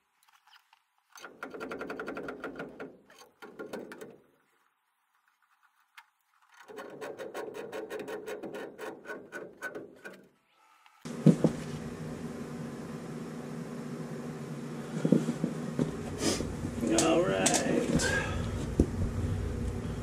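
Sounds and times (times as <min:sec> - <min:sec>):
motor humming: 0:11.1 - 0:20.0.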